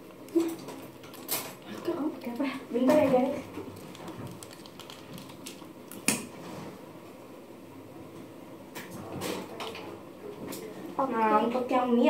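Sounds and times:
sachets rustling: 0:03.1 - 0:05.7.

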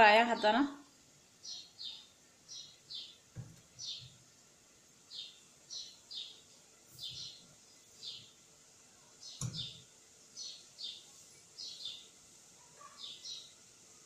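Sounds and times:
small bird chirping: 0:01.4 - 0:04.2, 0:05.1 - 0:08.4, 0:09.2 - 0:13.6.

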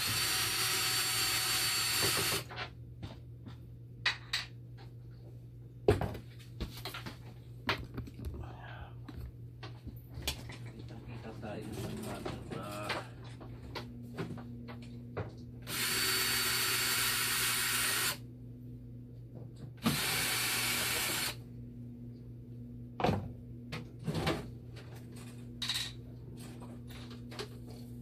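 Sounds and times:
cordless drill whining: 0:00.0 - 0:02.5, 0:15.6 - 0:18.2, 0:19.8 - 0:21.4.

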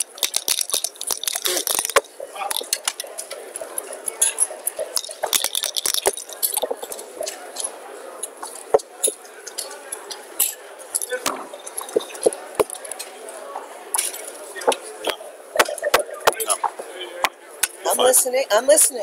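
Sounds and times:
dice rattling: 0:00.0 - 0:03.0, 0:05.0 - 0:06.9.

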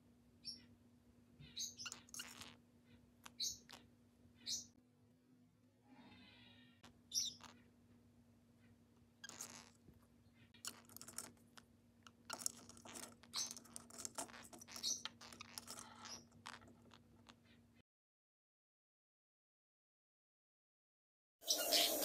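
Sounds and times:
bird chirping: 0:00.4 - 0:00.8, 0:01.4 - 0:04.8, 0:06.0 - 0:07.8, 0:08.5 - 0:17.8, 0:21.4 - 0:22.0.

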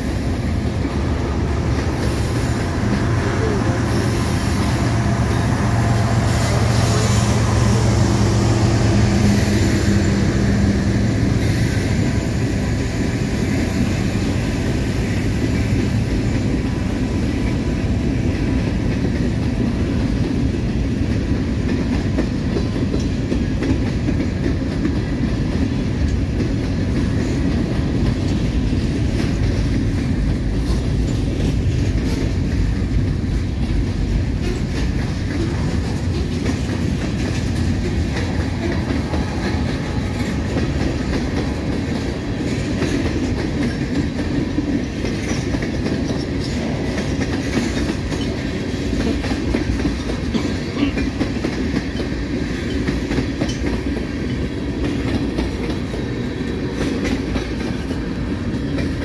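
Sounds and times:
freight cars rumbling past: 0:00.0 - 0:13.5
wheels clickety-clack: 0:00.0 - 0:59.0.

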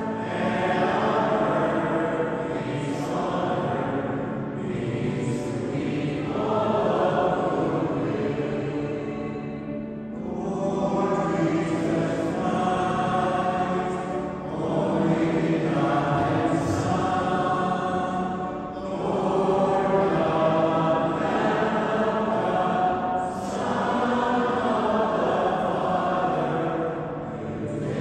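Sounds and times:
congregation singing a hymn: 0:00.0 - 0:28.0.

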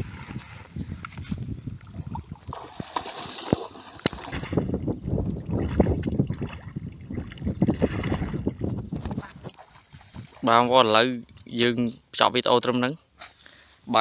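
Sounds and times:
person wading through muddy water: 0:00.0 - 0:11.0.

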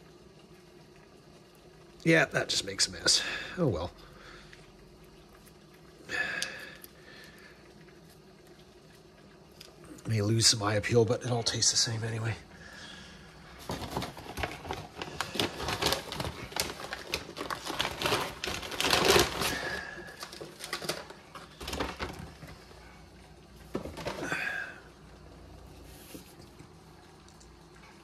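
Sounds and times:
plastic packets crinkling: 0:13.5 - 0:22.7.

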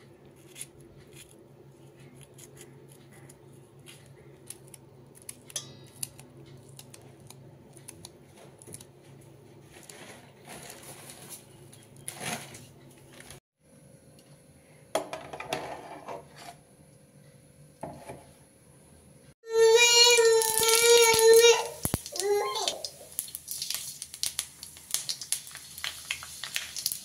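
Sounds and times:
knife cutting chilli: 0:00.4 - 0:08.9
metal cookware knocks and clinks: 0:05.6 - 0:05.9.

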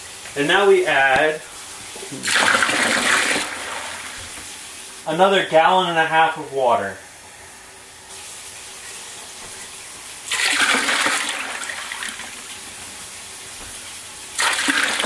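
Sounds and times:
water pouring into tub: 0:00.6 - 0:04.7, 0:10.2 - 0:12.6, 0:14.4 - 0:15.0.

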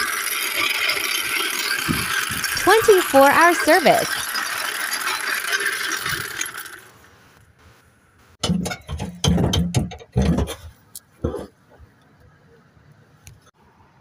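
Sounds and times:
metallic rattle: 0:00.0 - 0:07.0
floor jack clunks and knocks: 0:08.4 - 0:11.5.

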